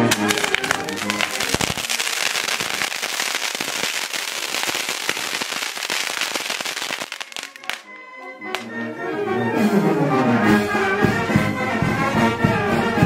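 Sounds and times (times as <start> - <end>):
firecrackers crackling: 0.0 - 8.7
faint brass band: 7.4 - 13.0.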